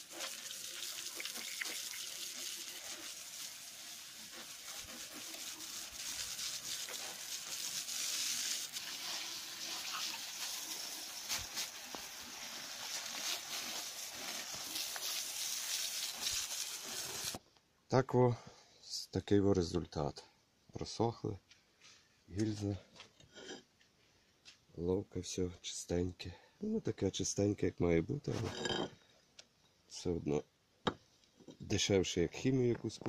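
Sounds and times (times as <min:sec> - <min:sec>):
hose water spraying on metal: 0:00.0 - 0:17.4.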